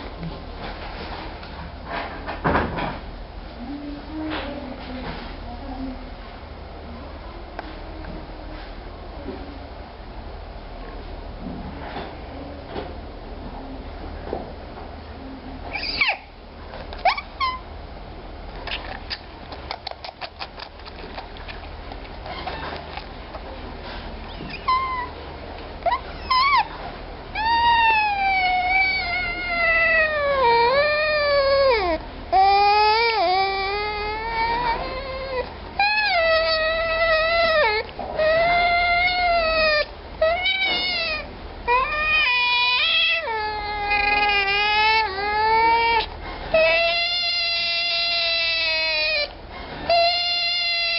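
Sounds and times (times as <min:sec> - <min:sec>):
baby otter whistling calls: 0:15.7 - 0:16.3, 0:24.3 - 0:25.1, 0:25.9 - 0:26.7, 0:46.6 - 0:49.3, 0:49.9 - 0:50.9
otter suckling wet clicks: 0:18.6 - 0:23.5.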